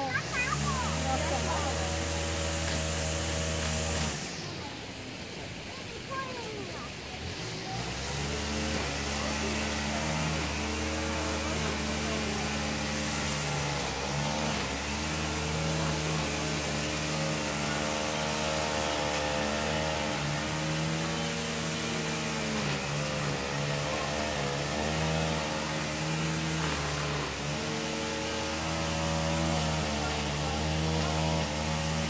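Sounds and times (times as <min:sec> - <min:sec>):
engine running: 0:00.0 - 0:32.0.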